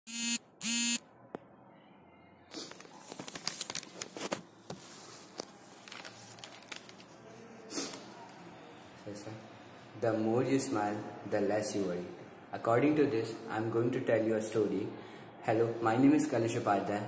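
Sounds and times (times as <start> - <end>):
paper face mask rustling: 2.5 - 8.0.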